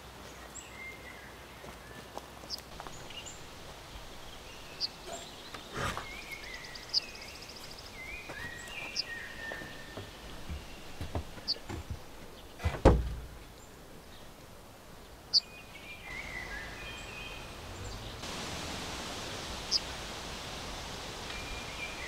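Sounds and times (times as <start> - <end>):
songbirds calling: 0.0 - 22.0
heavy wooden thump: 10.0 - 13.4
wooden door knocks: 12.6 - 13.3.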